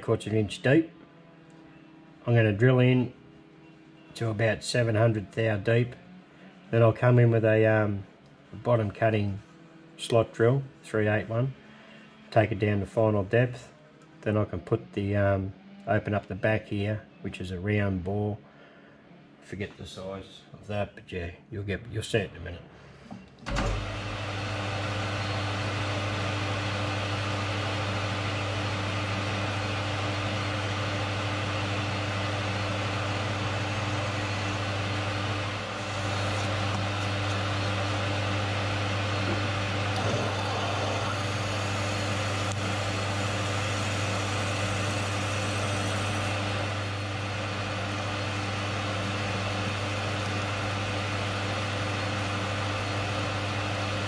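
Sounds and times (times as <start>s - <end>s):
drill boring into metal: 23.5s - 54.0s
metal lathe humming: 23.5s - 54.0s.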